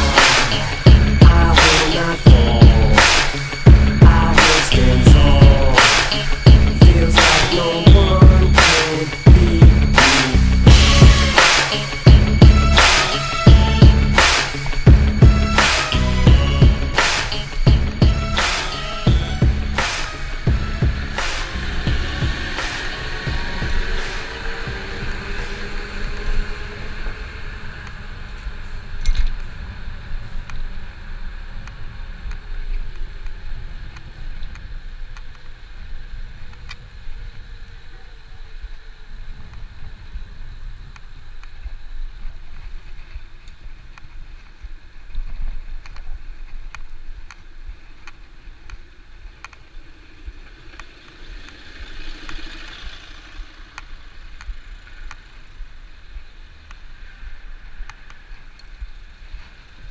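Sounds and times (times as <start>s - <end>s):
bicycle road noise: 0.0s - 59.9s
wind rumbling on microphone: 0.0s - 59.9s
hiss: 19.8s - 59.9s.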